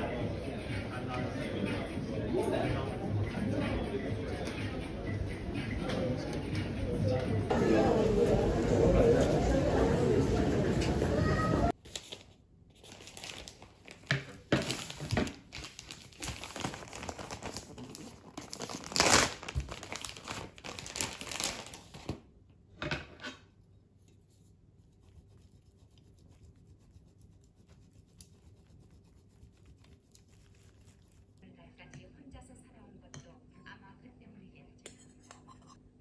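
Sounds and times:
crinkling and rustling: 11.9s - 22.2s.

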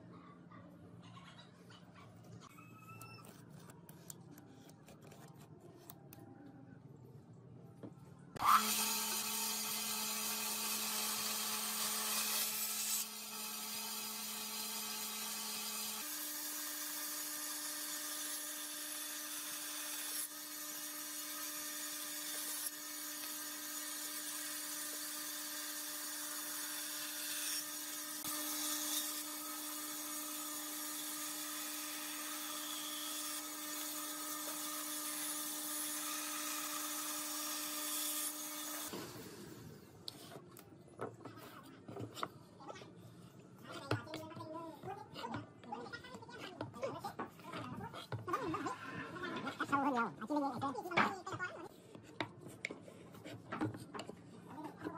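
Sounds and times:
bandsaw cutting wood: 8.4s - 39.0s.

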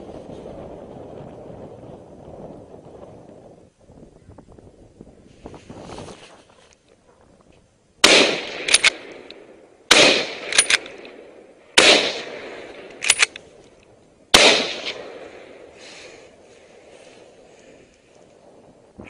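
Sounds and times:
rifle shots: 8.0s - 13.4s, 14.3s - 15.7s
short sharp cracks: 8.0s - 13.5s.

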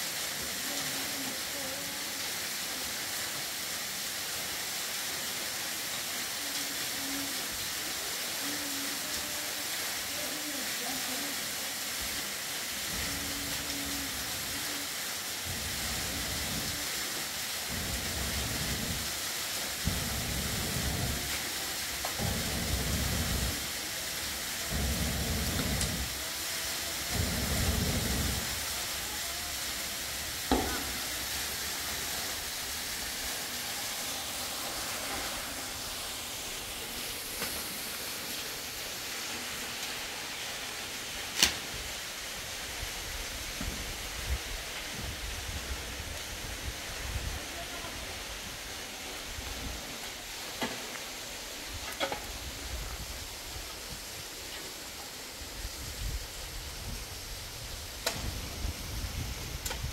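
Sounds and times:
steady hiss: 0.0s - 59.9s
person blowing on embers: 12.7s - 38.9s, 55.6s - 59.9s.

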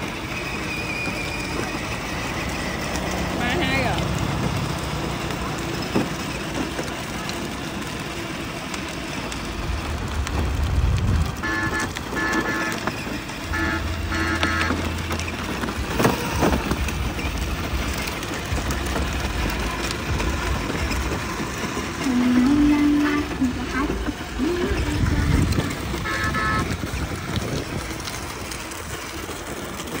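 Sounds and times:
low motor hum: 0.0s - 30.0s
toy jeep driving over paving: 0.0s - 30.0s
short electronic horn beeps: 11.4s - 15.0s, 26.0s - 26.8s.

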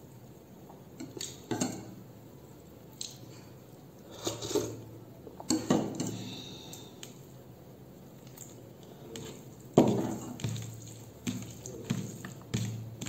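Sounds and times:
wet chewing of food: 8.1s - 13.0s.

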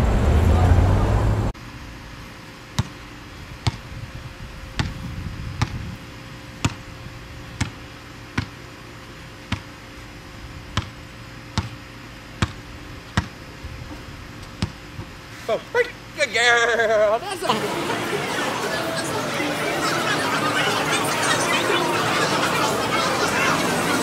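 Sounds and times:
basketball bouncing on pavement: 2.8s - 3.0s, 3.6s - 3.9s, 4.8s - 5.0s, 6.6s - 6.8s, 7.6s - 8.6s, 9.5s - 9.7s, 10.7s - 11.8s, 12.4s - 13.4s, 14.5s - 15.1s.

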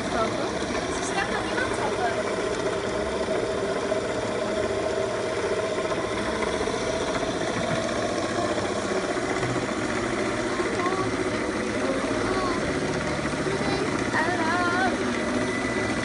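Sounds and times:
spinning wheel motor hum: 0.0s - 16.0s.

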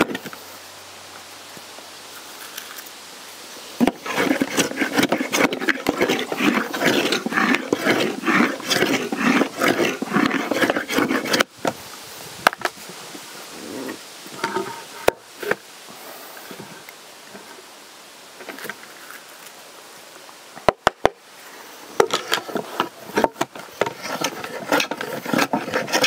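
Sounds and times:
hand tool rasping into wood: 3.8s - 11.5s, 22.0s - 26.0s.

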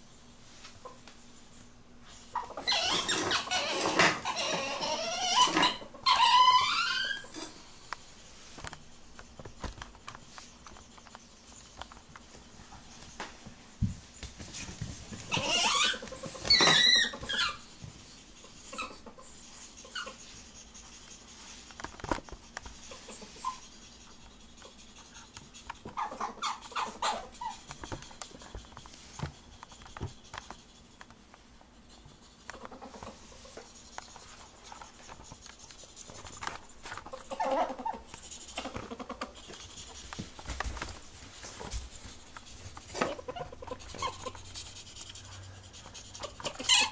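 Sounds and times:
ferrets crying: 2.3s - 7.7s, 15.2s - 17.7s, 18.4s - 20.8s, 22.8s - 28.7s, 36.5s - 39.8s, 42.9s - 46.9s.

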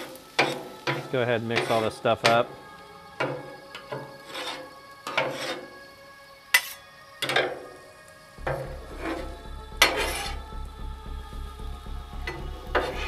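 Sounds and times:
metal spatulas scraping on griddle: 0.0s - 2.5s, 3.2s - 5.8s, 6.5s - 7.7s, 9.8s - 10.4s.

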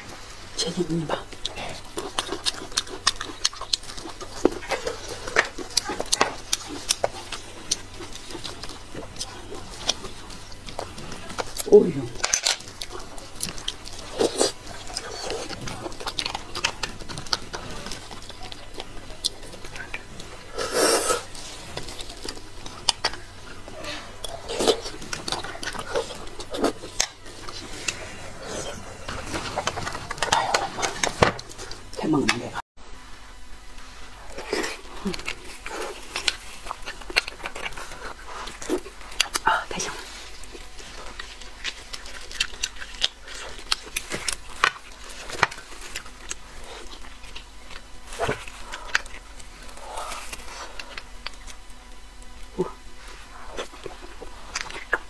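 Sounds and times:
chewing and wet mouth smacks: 1.2s - 28.6s, 40.2s - 52.6s, 53.5s - 55.0s.

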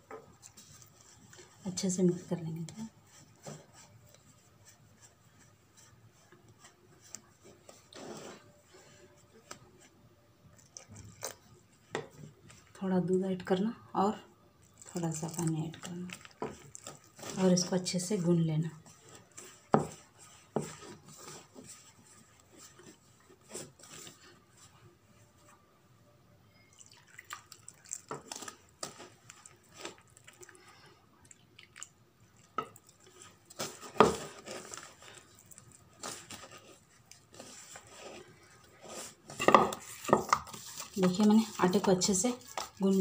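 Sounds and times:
hands kneading wet dough: 0.0s - 25.6s, 26.5s - 43.0s.

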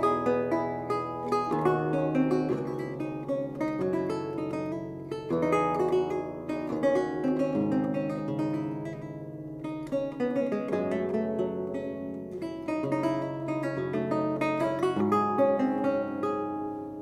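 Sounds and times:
lute playing: 0.0s - 17.0s.

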